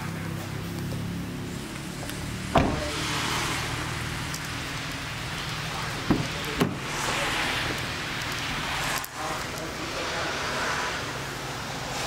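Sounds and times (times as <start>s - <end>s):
sharp knocks on car panels: 2.5s - 2.8s, 6.1s - 6.8s.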